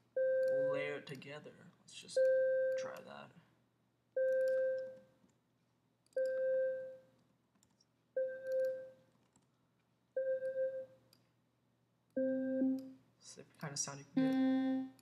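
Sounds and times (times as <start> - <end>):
synthesizer note: 14.2 - 15.0.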